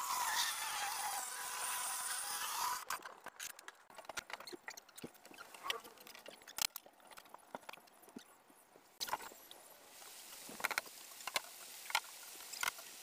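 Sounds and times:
circular saw cutting plywood: 0.0s - 2.9s.

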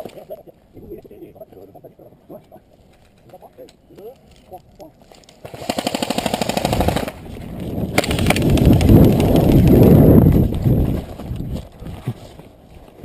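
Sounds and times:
airsoft gun full-auto burst: 5.5s - 7.2s, 8.0s - 9.5s
microphone handling rumble: 7.2s - 12.5s.

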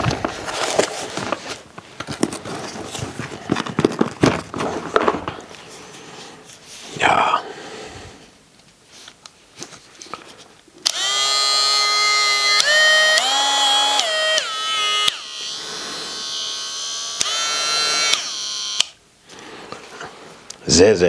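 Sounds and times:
rotary tool whining: 10.8s - 19.0s.

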